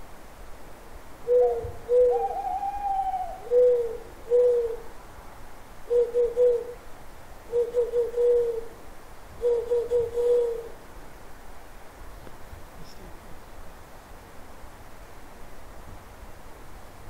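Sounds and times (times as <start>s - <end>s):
owl hooting: 1.2s - 4.9s, 5.9s - 6.8s, 7.5s - 8.8s, 9.4s - 10.8s.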